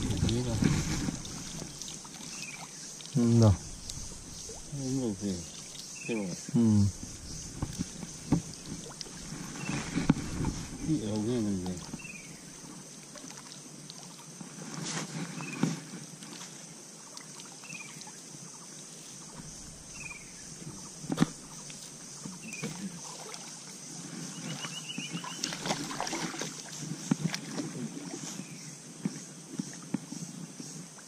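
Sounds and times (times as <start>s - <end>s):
sharp knocks and splashes: 0.0s - 6.0s, 7.0s - 12.3s, 19.3s - 23.7s, 24.5s - 28.2s
water sloshing around wading legs: 0.0s - 6.2s, 6.9s - 28.5s
steady high hiss: 0.0s - 31.0s.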